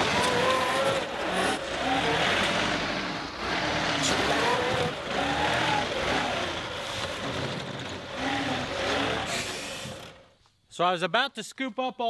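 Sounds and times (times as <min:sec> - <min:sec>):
rising and falling whine: 0:00.0 - 0:06.8
tractor diesel engine under load: 0:00.0 - 0:10.4.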